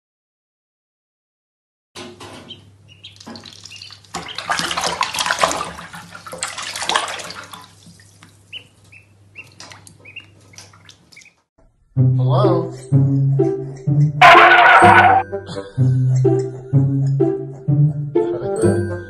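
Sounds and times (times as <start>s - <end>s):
duckling peeping: 2.4s - 4.8s, 8.4s - 11.4s
water splashing in a bathtub: 2.4s - 11.4s.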